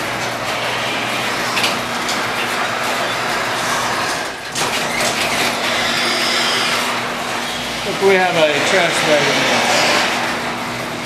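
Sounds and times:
garage door opener running: 0.0s - 11.0s.

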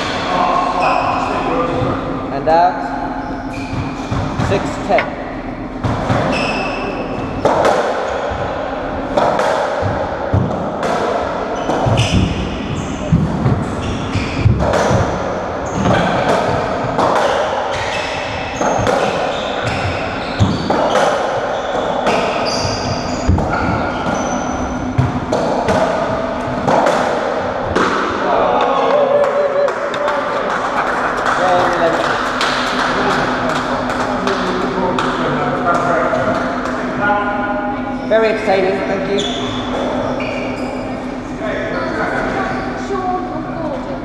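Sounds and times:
ball hitting racquets and walls: 7.3s - 8.4s, 9.0s - 30.3s, 31.2s - 36.8s.

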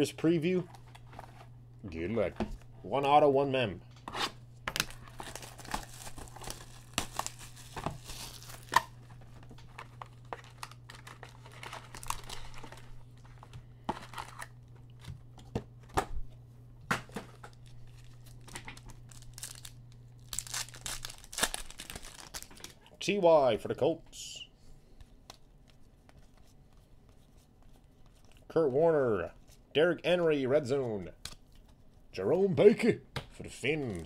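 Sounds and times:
plastic wrappers crinkling and tearing: 4.7s - 15.1s, 17.3s - 22.9s.

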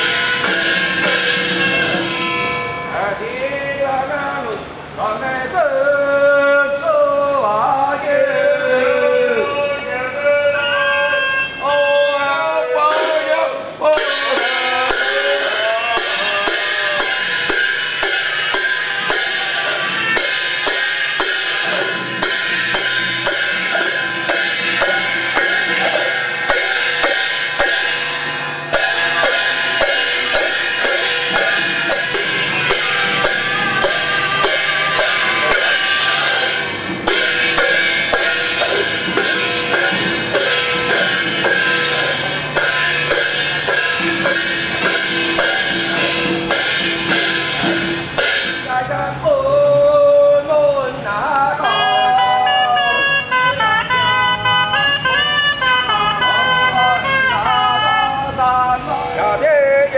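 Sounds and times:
drums and cymbals beat: 0.0s - 3.0s, 12.8s - 48.9s
held melody line: 12.8s - 49.8s, 50.8s - 59.8s.

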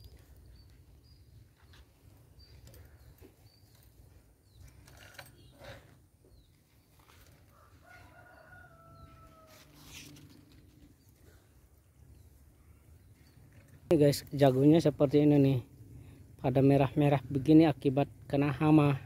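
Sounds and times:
small birds chirping: 0.0s - 7.3s
rooster crowing: 7.5s - 10.0s.

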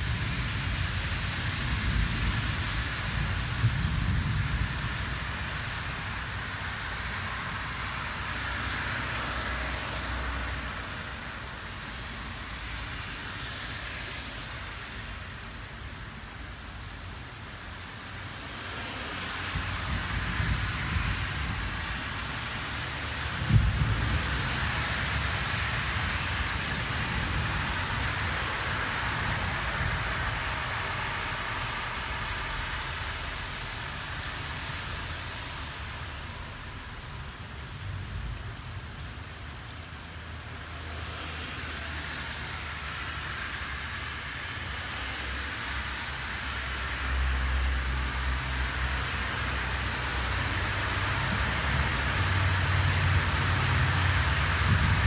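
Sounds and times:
low thunder rumble: 0.0s - 7.2s, 23.2s - 33.2s
steady rain hiss: 0.0s - 55.0s.

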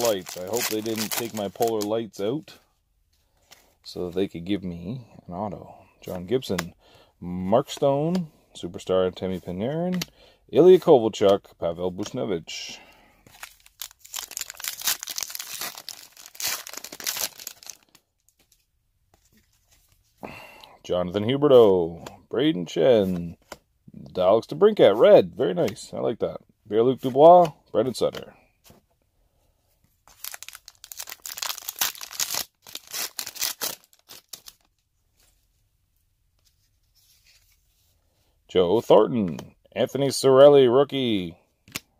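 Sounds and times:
wrapper crinkling and tearing: 0.0s - 1.9s, 13.3s - 18.0s, 30.1s - 34.8s.

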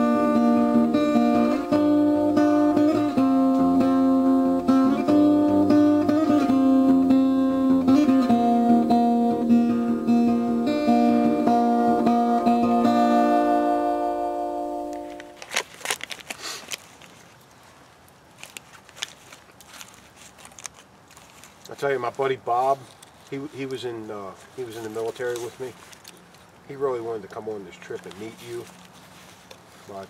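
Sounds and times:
acoustic guitar melody: 0.0s - 15.6s.

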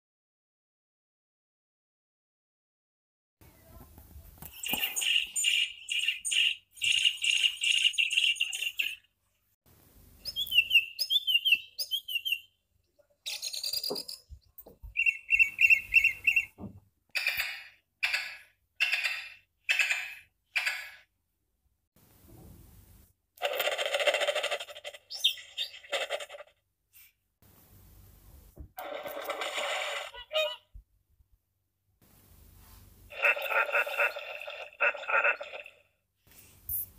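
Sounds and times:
recorded baby birds chirping: 4.4s - 9.1s, 10.2s - 16.6s, 36.7s - 36.9s
recorded songbird calls: 4.5s - 9.1s, 10.2s - 12.6s, 13.2s - 16.6s, 24.8s - 26.4s, 33.1s - 35.7s.

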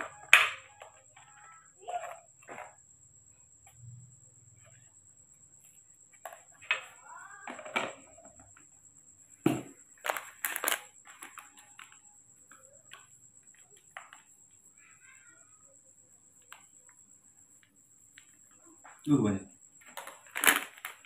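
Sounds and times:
plastic cups knocking on tray: 9.4s - 12.0s
packet crinkling: 10.0s - 11.5s, 20.0s - 21.0s.

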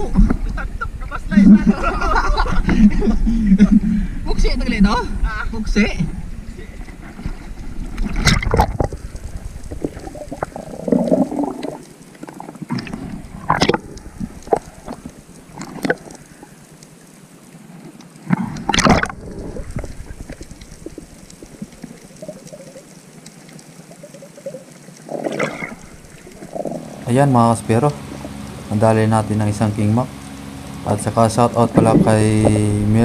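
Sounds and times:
muffled underwater water bubbling: 0.0s - 33.0s
sharp water splashes: 7.2s - 16.6s, 18.2s - 32.8s.

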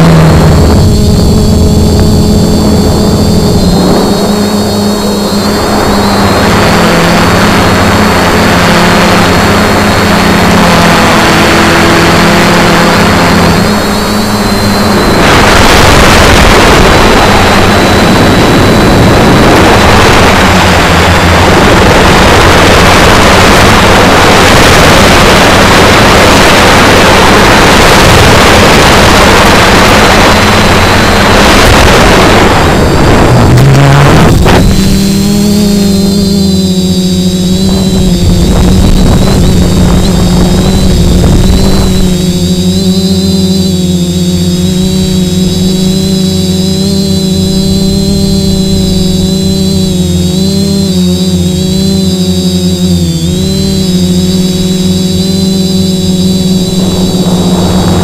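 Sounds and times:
drone propellers buzzing: 0.0s - 58.0s
wind noise on microphone: 0.0s - 58.0s.

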